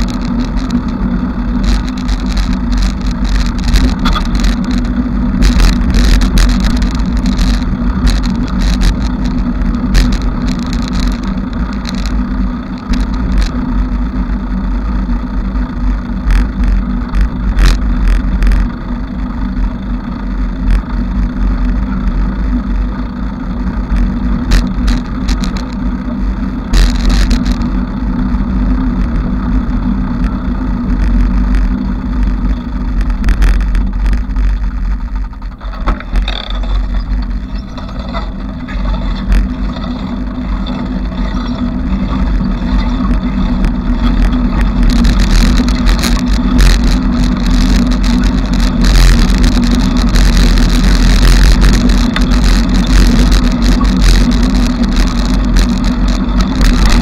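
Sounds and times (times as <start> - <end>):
bicycle rattles and clicks: 0.0 - 57.0
bicycle rumbling: 0.0 - 57.0.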